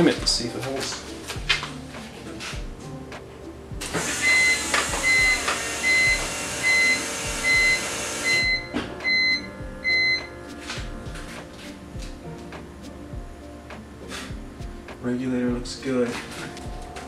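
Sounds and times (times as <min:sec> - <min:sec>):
music with beeping beat: 0:00.0 - 0:17.0
electric fuel pump hiss: 0:03.8 - 0:09.0.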